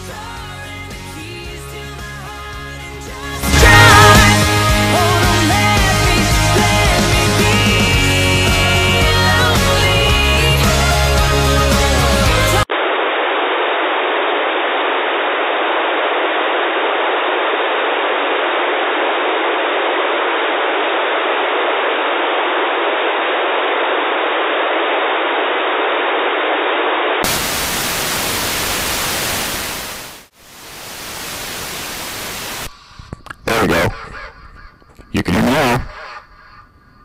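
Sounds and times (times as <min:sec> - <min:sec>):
radio static hiss: 0:12.7 - 0:36.2.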